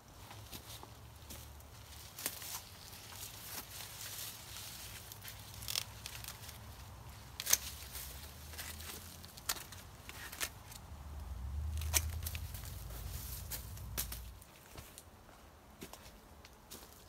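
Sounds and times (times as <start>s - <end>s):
dry leaves crackling and rustling: 0.4s - 15.0s
pruning shears snipping stalks: 2.1s - 10.9s, 11.6s - 14.4s.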